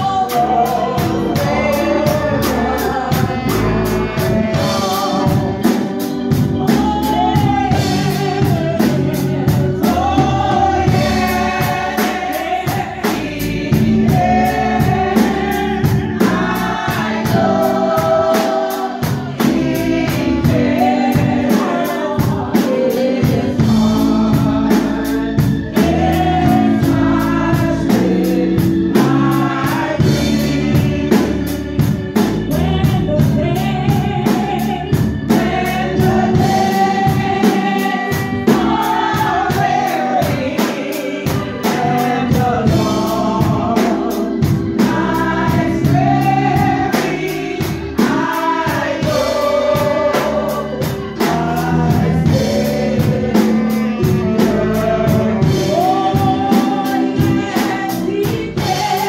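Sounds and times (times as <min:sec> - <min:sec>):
woman singing lead: 0:00.0 - 0:25.0, 0:32.5 - 0:59.0
backing singers: 0:00.0 - 0:31.8, 0:32.4 - 0:59.0
drums keeping a steady beat: 0:00.0 - 0:59.0
electric bass guitar: 0:22.3 - 0:39.8, 0:41.5 - 0:59.0.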